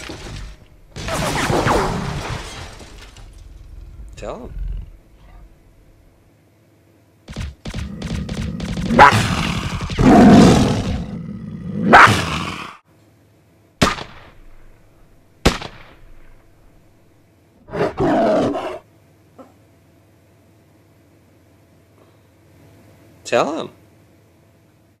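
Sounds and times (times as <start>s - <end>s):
sharp bangs: 7.3s - 11.0s, 13.8s - 16.9s
small dog barking and growling: 8.9s - 12.8s.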